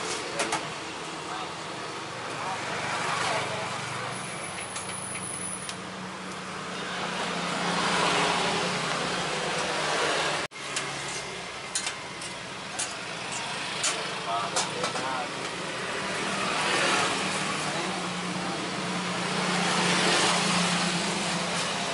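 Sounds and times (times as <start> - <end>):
street traffic: 0.0 - 21.9.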